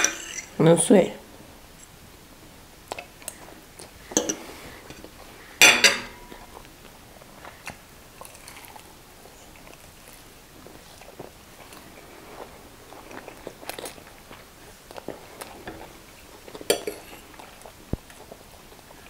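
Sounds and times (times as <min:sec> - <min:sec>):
fork scraping ceramic plate: 0:00.0 - 0:00.5.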